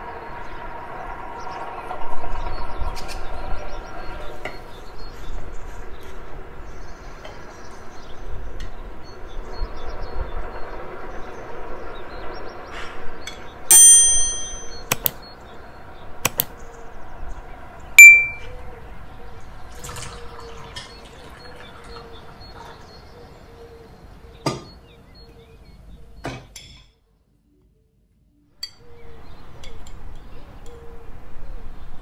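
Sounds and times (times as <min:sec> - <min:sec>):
bright chime: 0:13.7 - 0:15.0, 0:18.0 - 0:18.5
bell ding: 0:13.7 - 0:15.1, 0:18.0 - 0:18.5
mouse clicks: 0:14.8 - 0:15.2, 0:16.3 - 0:16.5.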